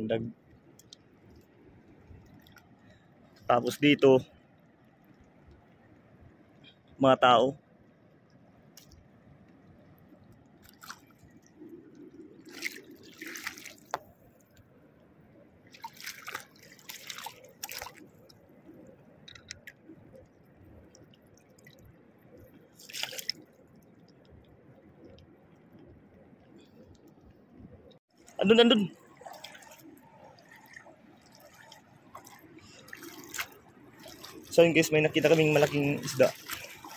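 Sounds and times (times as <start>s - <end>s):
water splashing from wading: 8.7s - 14.9s, 15.6s - 25.8s, 28.1s - 36.9s.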